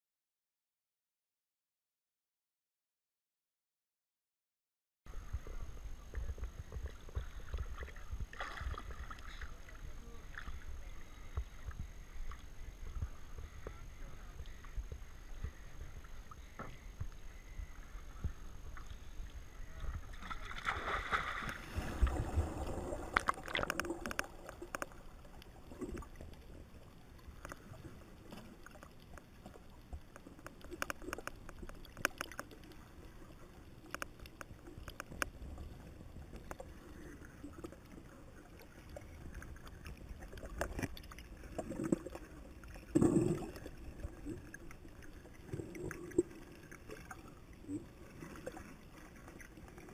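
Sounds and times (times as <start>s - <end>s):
water sloshing and splashing: 6.3s - 10.7s, 18.6s - 49.9s
gurgling bubbles: 17.4s - 49.9s
underwater clicks and pops: 20.2s - 26.3s, 27.4s - 32.8s, 33.8s - 35.4s, 39.8s - 42.2s.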